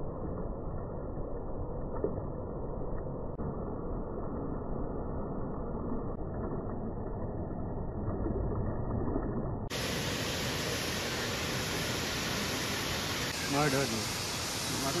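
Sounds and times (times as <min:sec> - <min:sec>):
waterfall rushing water: 0:09.7 - 0:15.0.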